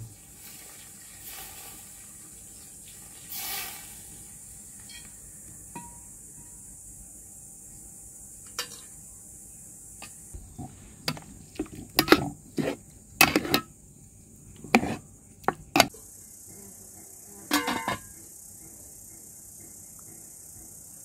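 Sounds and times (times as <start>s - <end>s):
metal skimmer clinking on pot: 10.5s - 13.7s, 17.5s - 18.1s.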